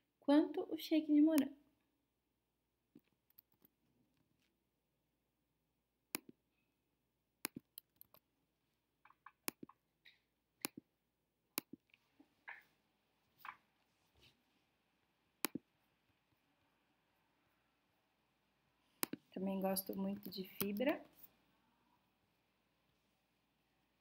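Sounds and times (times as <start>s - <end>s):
mouse and keyboard clicks: 3.0s - 3.7s, 7.4s - 8.2s, 9.0s - 10.8s, 15.4s - 15.7s, 19.0s - 20.9s.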